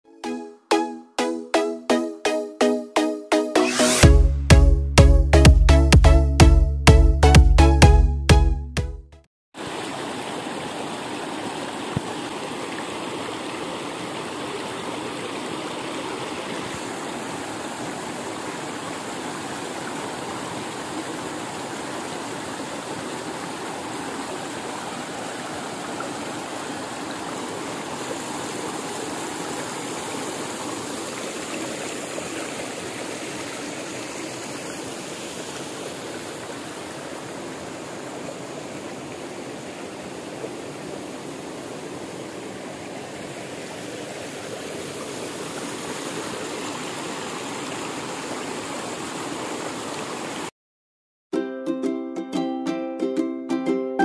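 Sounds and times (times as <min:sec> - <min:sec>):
small waterfall splashing: 0:09.6 - 0:50.5
stream running: 0:09.6 - 0:50.5.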